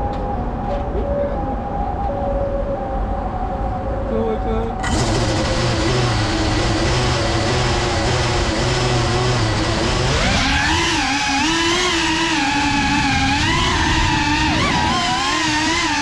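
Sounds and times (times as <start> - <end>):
drone motors whining: 4.8 - 16.0.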